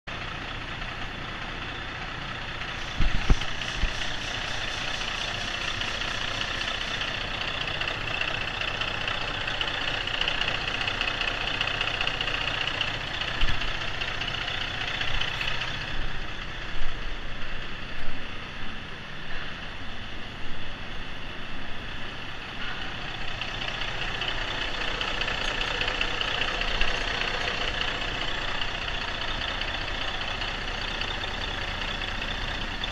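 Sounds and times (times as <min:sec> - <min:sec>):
diesel truck engine idling: 0:00.1 - 0:32.9.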